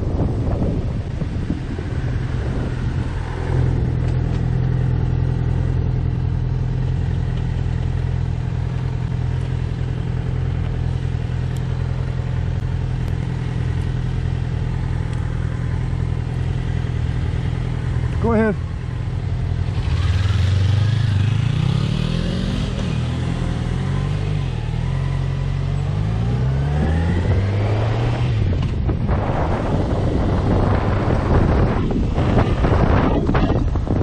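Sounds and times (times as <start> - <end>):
wind noise on microphone: 0.0 - 5.0, 26.3 - 34.0
motorcycle engine running: 0.0 - 34.0.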